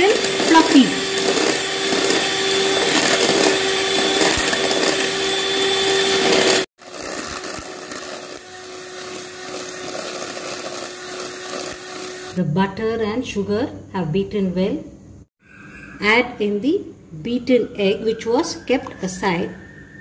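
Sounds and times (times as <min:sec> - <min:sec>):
electric mixer running: 0:00.0 - 0:12.4.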